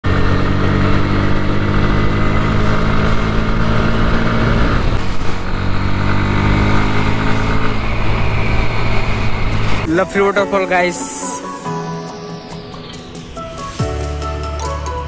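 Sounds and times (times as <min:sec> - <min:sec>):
motorcycle engine running: 0:00.0 - 0:09.9.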